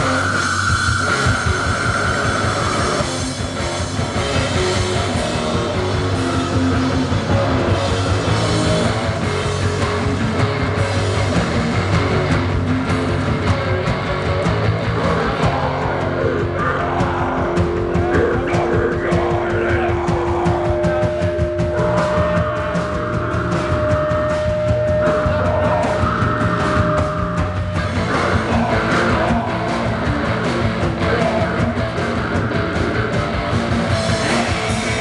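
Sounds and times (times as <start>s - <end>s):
distorted electric guitars: 0.0s - 35.0s
drum kit beat: 0.0s - 35.0s
heavy rock band playing: 0.0s - 35.0s.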